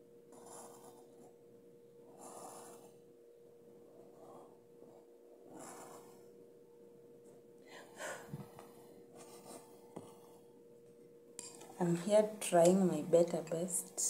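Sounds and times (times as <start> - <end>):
faint steady hum: 0.0 - 14.0
person breathing softly: 7.6 - 8.9.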